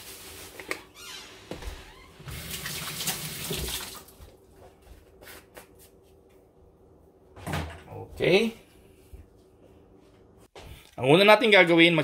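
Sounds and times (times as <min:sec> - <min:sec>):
kitchen tap running into sink: 0:02.3 - 0:04.1.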